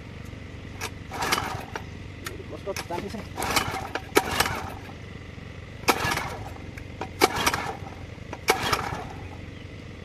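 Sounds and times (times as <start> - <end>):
engine cranking rattle: 0.7 - 9.6
recoil starter pull snap: 5.8 - 9.2.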